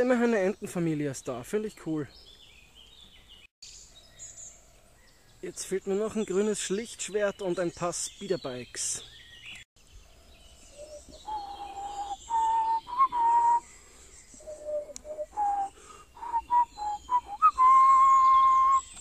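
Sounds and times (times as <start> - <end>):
person whistling a slow tune: 10.8 - 13.7, 14.4 - 19.0.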